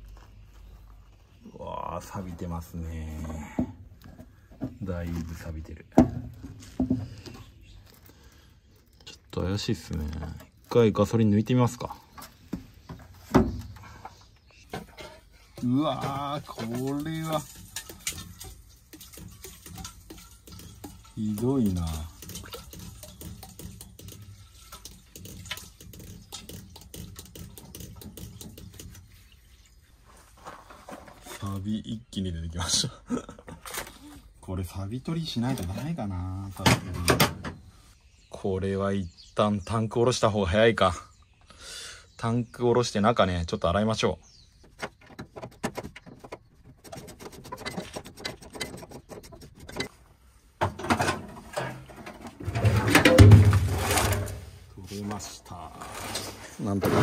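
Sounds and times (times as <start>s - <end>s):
liquid pouring into metal bowl: 16.9s - 28.6s
tank knocking and scraping on board: 44.6s - 50.0s, 50.6s - 54.6s.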